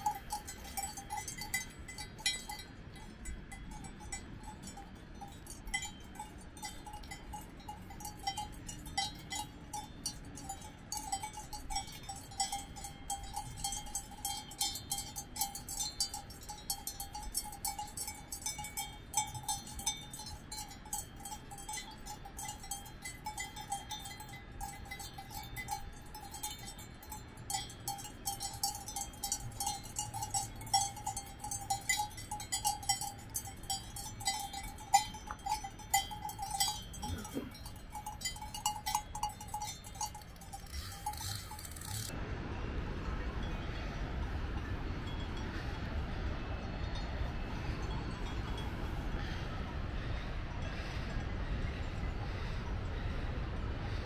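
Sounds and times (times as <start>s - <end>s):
cowbells clanking: 0.0s - 42.2s, 43.5s - 51.8s
steady ringing tone: 0.0s - 42.2s.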